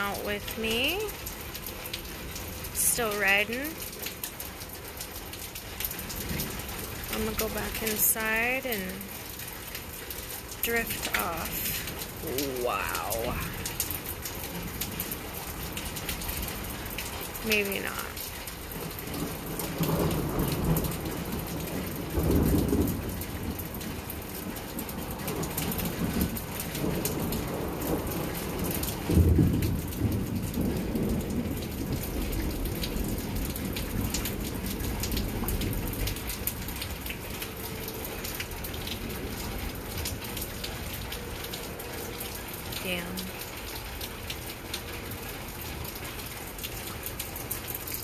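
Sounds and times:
rain falling: 0:00.0 - 0:48.0
thunder rolling: 0:24.8 - 0:36.4.

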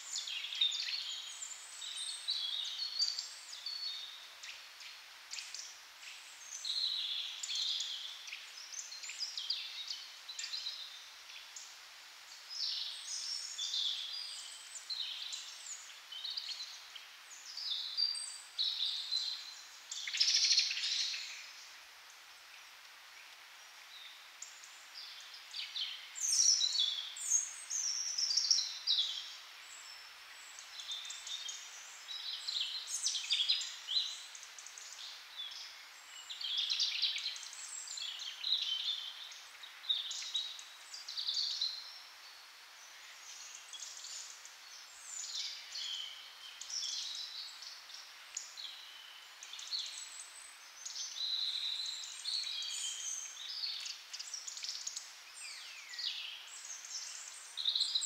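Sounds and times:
faint outdoor hiss: 0:00.0 - 0:58.0
small songbirds chirping: 0:00.0 - 0:58.0.

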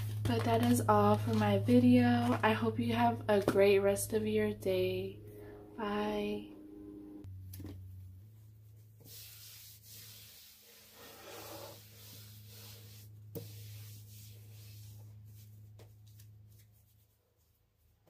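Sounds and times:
cloth rubbing on wooden table: 0:08.7 - 0:17.2.

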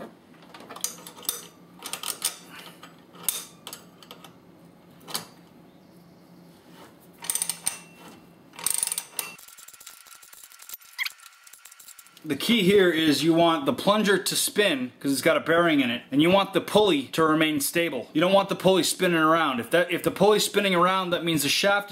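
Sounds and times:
ratcheting wrenches clicking: 0:08.6 - 0:12.3.

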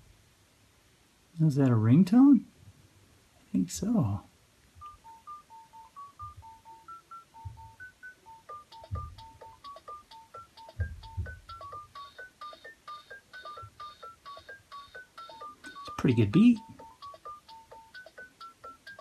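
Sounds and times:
electronic toy ringtone: 0:04.8 - 0:19.0.

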